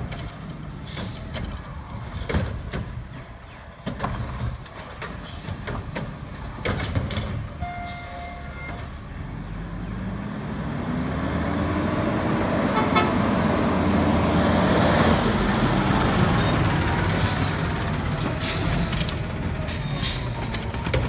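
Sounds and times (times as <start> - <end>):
metal clanks and knocks: 0.0 - 7.6
garbage truck running: 0.0 - 21.0
truck engine revving: 9.1 - 21.0.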